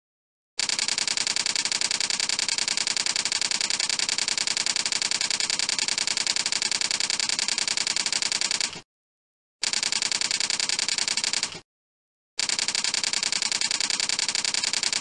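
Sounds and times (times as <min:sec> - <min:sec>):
keyboard typing: 0:12.4 - 0:15.0.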